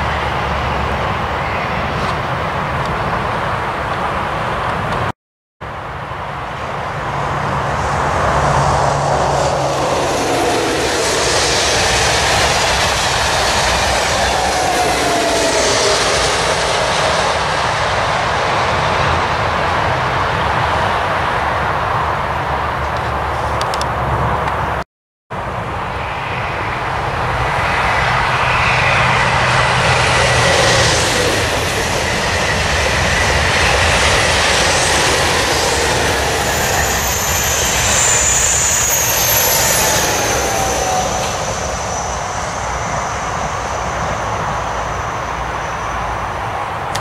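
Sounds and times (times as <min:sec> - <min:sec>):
high-speed train rushing past: 0:00.0 - 0:47.0
thin high whining tones: 0:07.6 - 0:18.0, 0:27.5 - 0:46.1.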